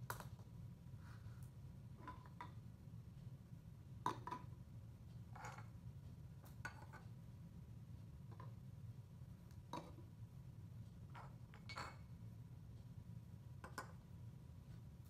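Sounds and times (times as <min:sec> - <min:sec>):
faint low room hum: 0:00.0 - 0:15.0.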